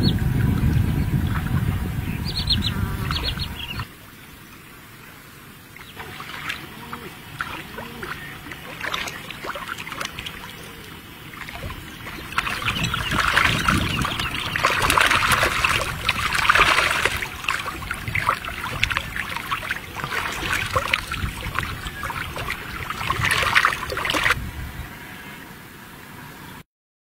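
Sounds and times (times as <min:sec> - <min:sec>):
shallow water splashing: 0:05.4 - 0:24.4.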